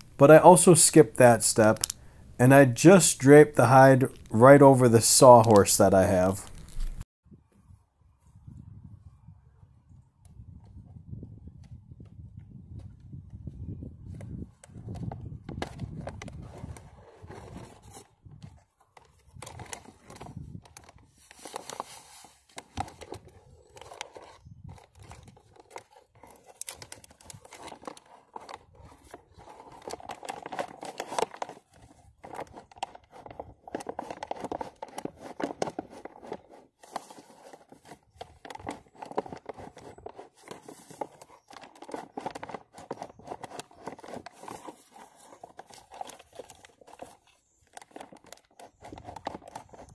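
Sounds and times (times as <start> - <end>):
hide rubbing and scraping: 15.8 - 18.1.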